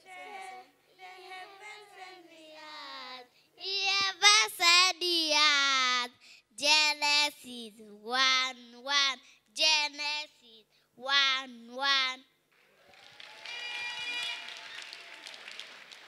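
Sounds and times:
girl singing into microphone: 0:00.0 - 0:10.3.

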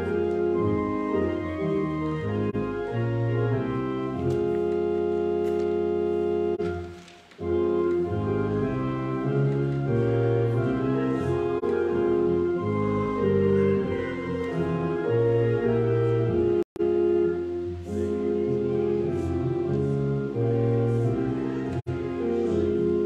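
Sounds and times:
church organ playing a hymn: 0:00.0 - 0:23.0.

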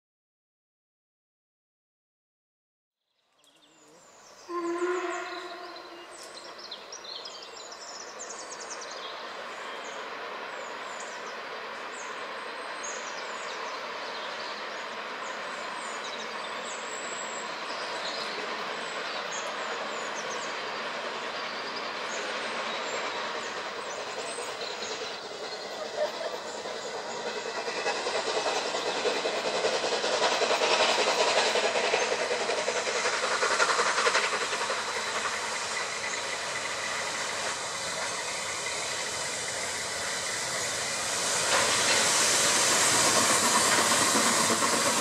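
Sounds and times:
birds chirping: 0:03.4 - 0:45.0
steam locomotives chuffing: 0:03.7 - 0:45.0
steam whistle blast: 0:04.5 - 0:06.1.

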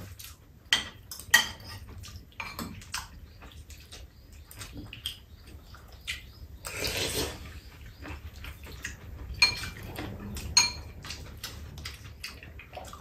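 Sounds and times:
utensils clinking on ceramic bowls: 0:00.7 - 0:02.8, 0:09.3 - 0:11.2
eating noise: 0:01.7 - 0:13.0.

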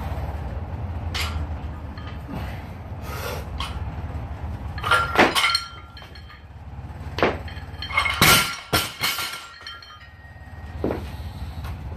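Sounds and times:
barbell plates clanking: 0:04.7 - 0:11.1
barbell dropped on floor: 0:04.8 - 0:06.2, 0:07.2 - 0:09.9.

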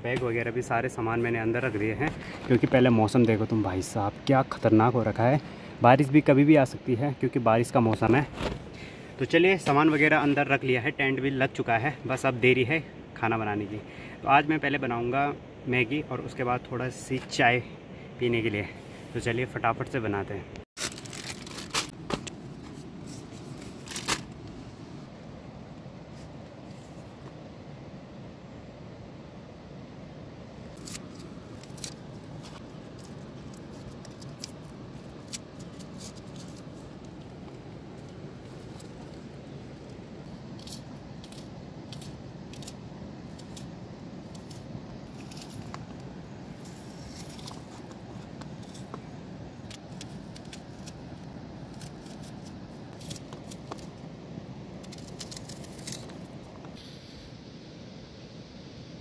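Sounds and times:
steady background hiss: 0:00.0 - 0:59.0
onion skin crackling: 0:49.6 - 0:54.0.

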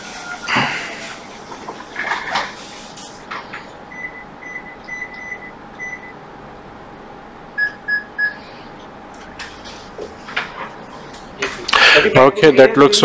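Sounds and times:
faint steady hum: 0:00.0 - 0:13.0
high-pitched electronic beeps: 0:07.6 - 0:08.6.

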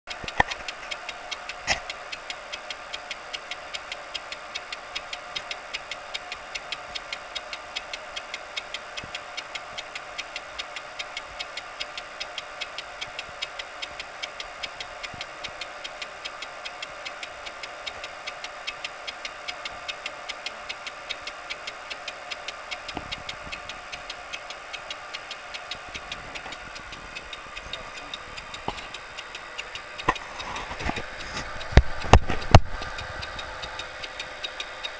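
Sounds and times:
lathe tool ticking on metal: 0:00.1 - 0:34.9
high whine: 0:22.0 - 0:34.9.

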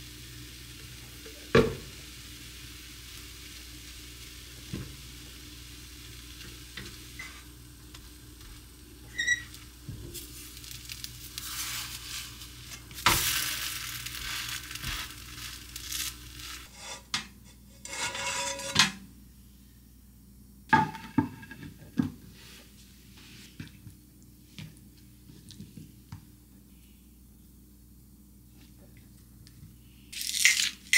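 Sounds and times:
batter sizzling in a frying pan: 0:00.0 - 0:17.0, 0:30.1 - 0:30.9
spatula scraping a pan: 0:10.4 - 0:19.0.

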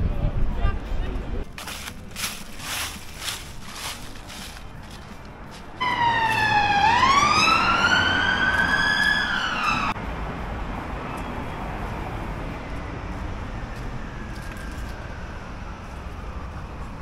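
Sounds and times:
street noise: 0:00.0 - 0:17.0
emergency siren wailing: 0:05.8 - 0:10.0, 0:12.0 - 0:17.0.

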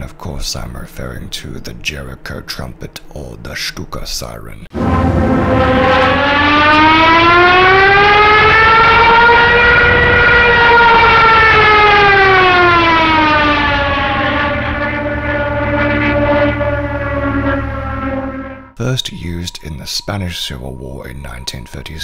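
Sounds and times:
low rumble: 0:04.7 - 0:18.8
dive siren wailing: 0:04.7 - 0:22.0.

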